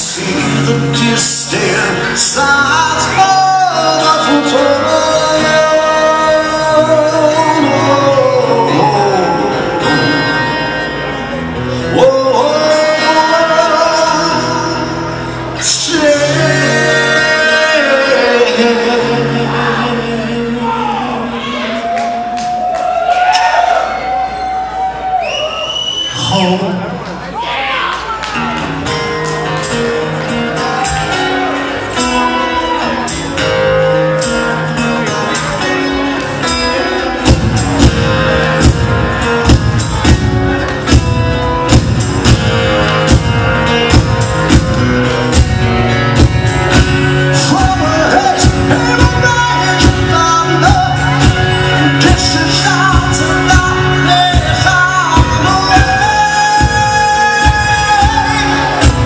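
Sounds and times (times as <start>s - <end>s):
person singing: 0.0s - 11.0s, 11.6s - 22.4s, 46.9s - 59.0s
live band with guitars: 0.0s - 59.0s
drums and bass beat: 36.4s - 59.0s.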